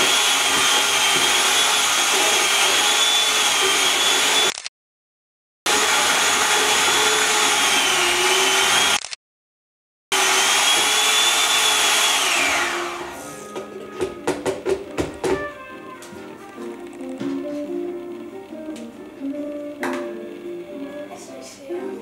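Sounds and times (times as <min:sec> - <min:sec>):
electric hand mixer whining: 0:00.0 - 0:04.6, 0:05.7 - 0:09.1, 0:10.1 - 0:21.2
music with plucked notes: 0:13.3 - 0:22.0.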